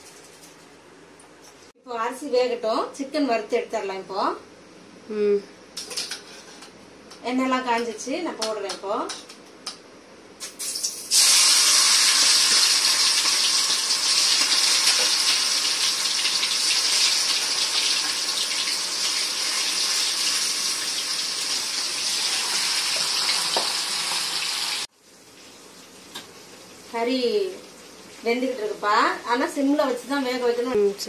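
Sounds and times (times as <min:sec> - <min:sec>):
chicken sizzling in hot oil: 0:10.4 - 0:28.9.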